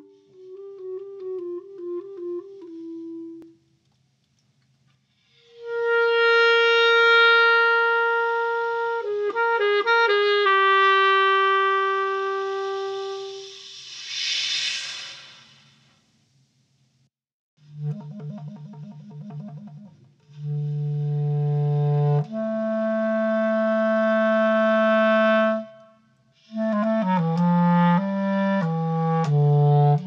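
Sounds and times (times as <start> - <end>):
solo clarinet: 0.0 - 3.6, 5.3 - 13.7, 17.6 - 30.0
breathy rush of air: 13.0 - 15.9.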